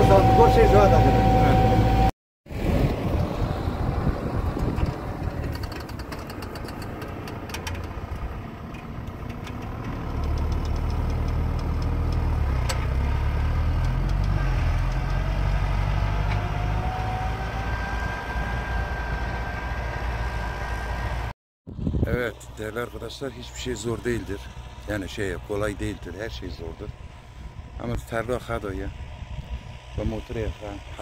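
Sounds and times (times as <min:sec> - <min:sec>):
faint rising whine: 0:00.0 - 0:05.2
vehicle engine rumbling: 0:00.0 - 0:31.0.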